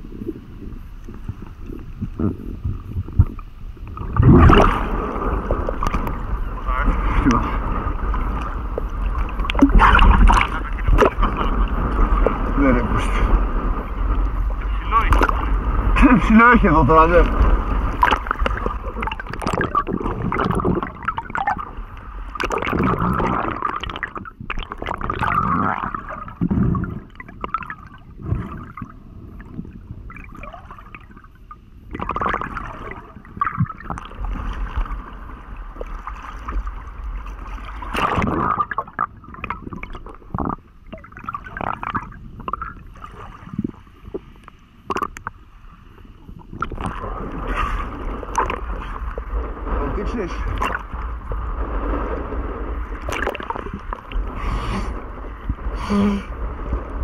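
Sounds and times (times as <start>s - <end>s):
underwater gurgling: 0.0s - 57.0s.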